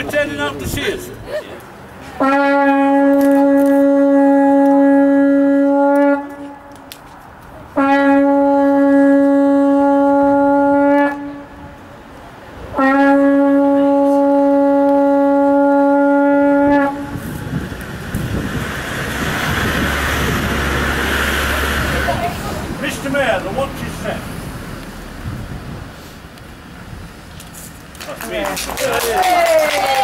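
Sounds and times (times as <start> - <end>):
horn blasts on a low note: 2.2 - 6.7, 7.8 - 11.8, 12.7 - 17.4.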